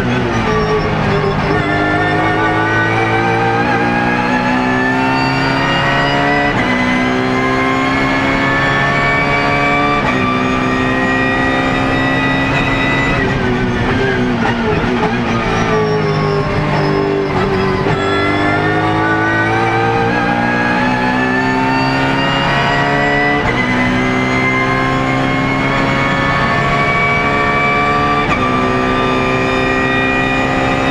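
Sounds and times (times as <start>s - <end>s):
race car engine at full throttle: 0.0s - 30.9s.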